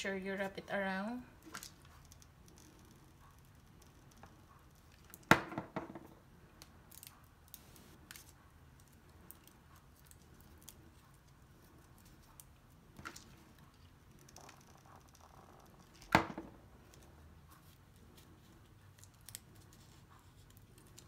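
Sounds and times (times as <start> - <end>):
glue gun knocking on countertop: 5.3 - 6.1.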